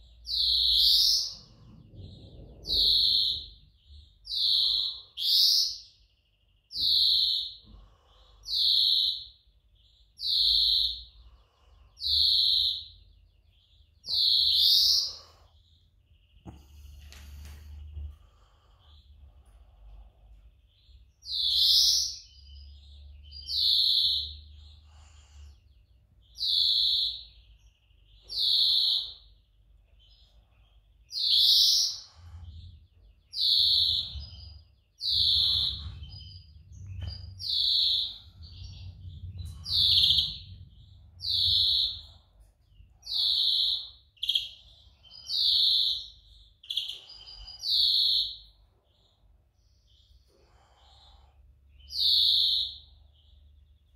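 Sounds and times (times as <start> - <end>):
finch calling loudly: 0.3 - 1.6, 2.6 - 5.9, 12.0 - 15.8, 20.8 - 25.6, 26.3 - 27.4, 28.1 - 29.3, 31.0 - 42.2, 43.0 - 51.2, 51.8 - 53.4.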